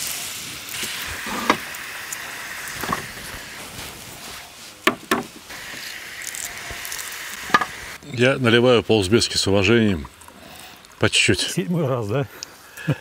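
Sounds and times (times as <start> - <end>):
carrots sizzling in oil: 0.0 - 8.0
sharp knocks: 4.8 - 5.3.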